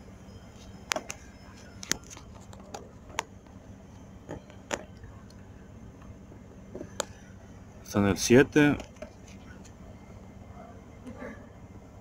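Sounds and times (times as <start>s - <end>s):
faint steady hum: 0.0s - 12.0s.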